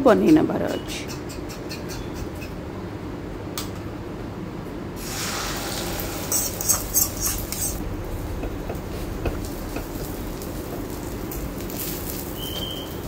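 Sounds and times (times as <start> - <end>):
egg sizzling in hot oil: 5.0 - 13.0.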